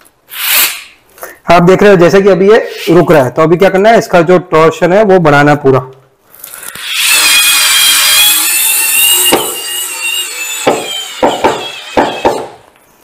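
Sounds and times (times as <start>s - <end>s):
cordless screwdriver whine: 6.4s - 12.6s
screw knocking into wood: 10.7s - 12.6s.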